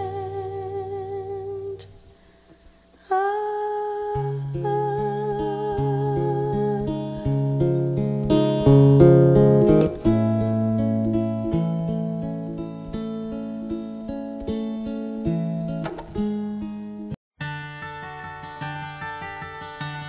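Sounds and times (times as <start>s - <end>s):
acoustic guitar picking: 4.1s - 20.0s.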